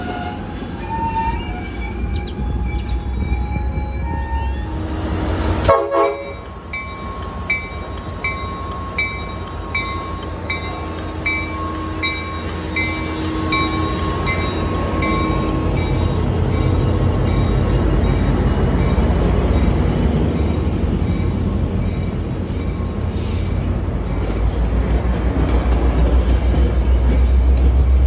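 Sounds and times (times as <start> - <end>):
diesel locomotive rumble: 0.0 - 28.0
railway bell dinging: 5.7 - 23.2.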